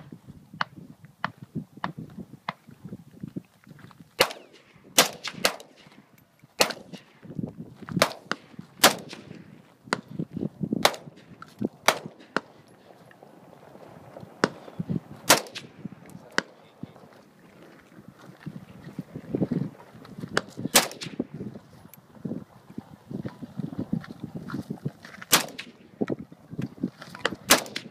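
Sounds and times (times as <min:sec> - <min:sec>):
pistol shots: 0:04.2 - 0:06.0, 0:06.6 - 0:07.2, 0:08.0 - 0:10.1, 0:10.8 - 0:12.7, 0:14.4 - 0:16.6, 0:20.7 - 0:21.3, 0:25.3 - 0:25.9, 0:27.4 - 0:27.9
rifle shots: 0:04.2 - 0:06.0, 0:06.6 - 0:07.2, 0:08.0 - 0:09.6, 0:10.8 - 0:12.7, 0:14.4 - 0:16.6, 0:20.7 - 0:21.3, 0:25.3 - 0:25.9, 0:27.4 - 0:27.9.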